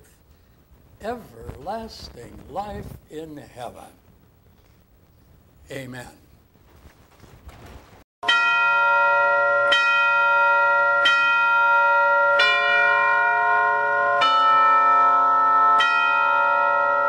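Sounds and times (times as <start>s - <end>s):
church bells ringing: 8.2s - 17.0s.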